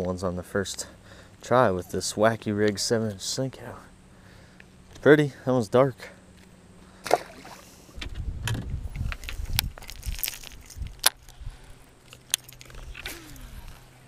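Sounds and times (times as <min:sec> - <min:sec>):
wind rumble on microphone: 0:08.0 - 0:11.8.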